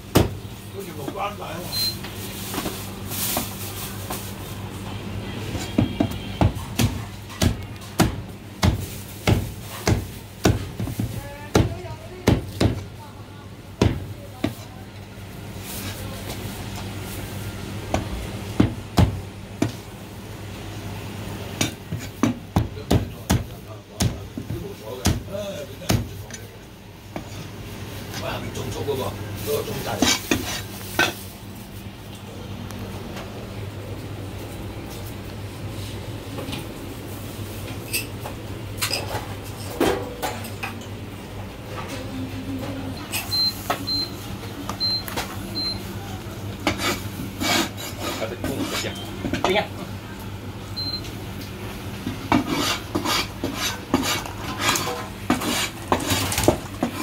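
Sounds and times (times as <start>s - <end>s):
low electrical hum: 0.0s - 57.0s.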